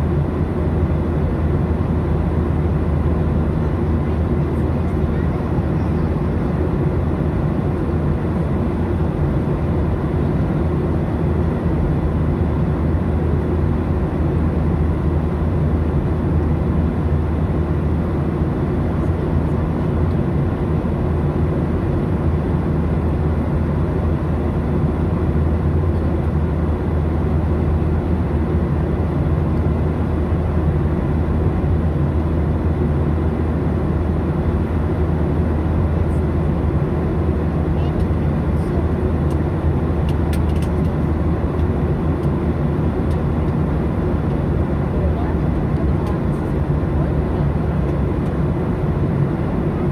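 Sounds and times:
constant cabin hum: 0.0s - 49.9s
jet engine and airflow rumble: 0.0s - 49.9s.

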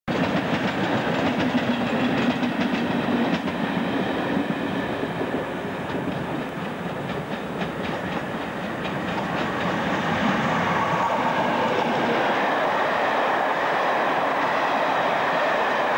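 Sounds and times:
train rumbling: 0.1s - 15.9s
wheels clicking over rail joints: 5.3s - 10.2s.

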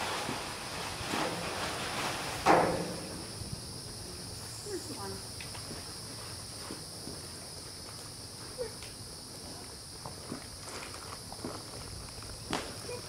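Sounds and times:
high-pitched insect chorus: 0.2s - 13.0s
horse hooves on paving: 5.4s - 13.0s.

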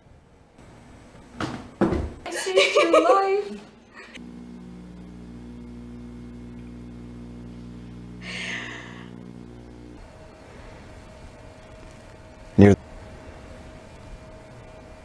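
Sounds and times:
electrical hum: 0.0s - 15.0s
short breathy hiss: 8.2s - 9.2s.

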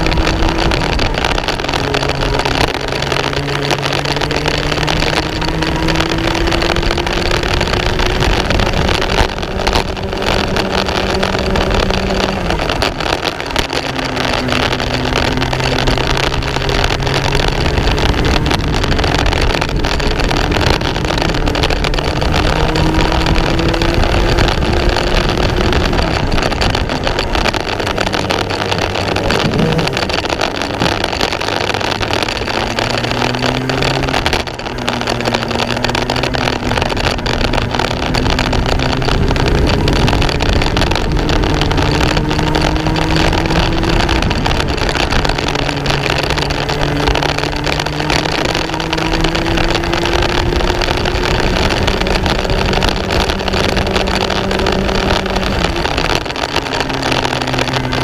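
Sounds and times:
racing kart engine: 0.0s - 58.0s
wind and track noise: 0.0s - 58.0s.

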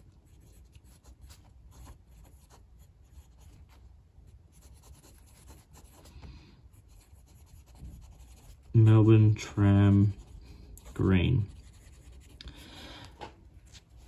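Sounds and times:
pen nib scratching on paper: 0.0s - 3.7s, 4.5s - 6.2s, 6.8s - 8.8s, 9.4s - 12.6s.

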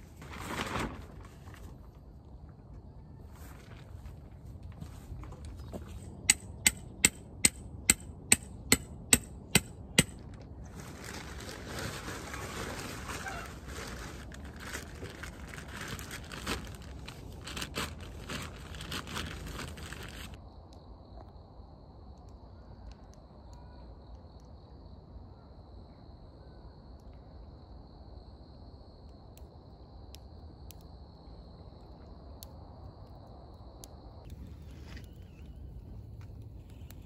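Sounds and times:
plastic tarp crinkling: 0.0s - 2.0s, 10.6s - 20.4s.

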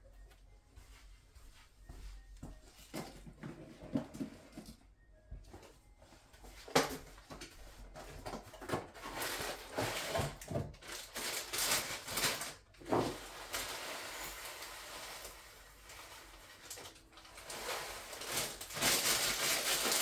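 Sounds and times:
food packaging rustling: 7.8s - 20.0s.

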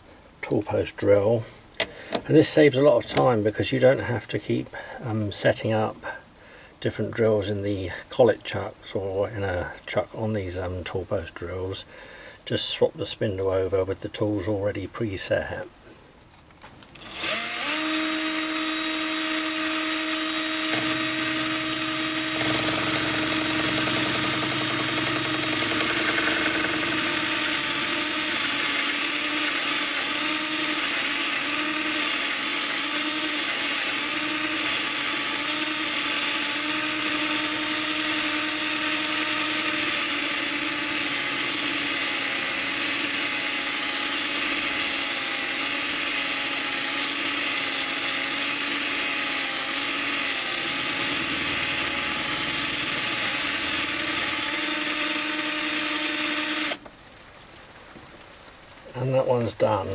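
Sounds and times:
cordless drill motor running: 17.0s - 56.9s.

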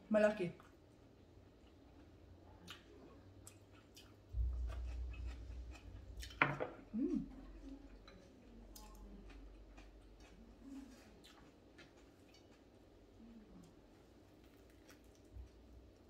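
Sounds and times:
low rumbling handling noise: 4.3s - 8.1s.

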